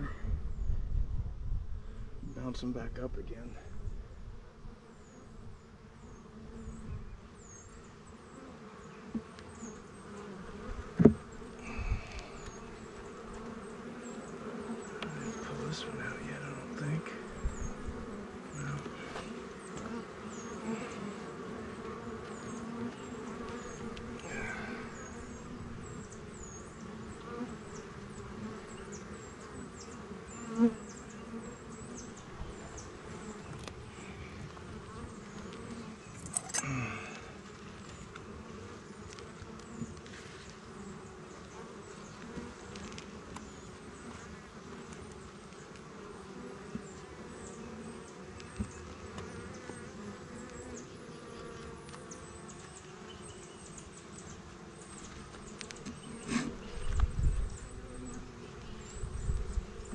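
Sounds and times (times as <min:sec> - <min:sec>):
honeybees buzzing: 0:02.0 - 0:59.9
scraping rustle: 0:39.1 - 0:40.7, 0:55.0 - 0:57.7.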